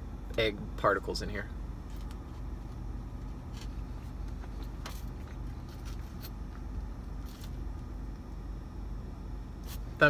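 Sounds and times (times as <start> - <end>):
car engine and air conditioning hum: 0.0 - 10.0.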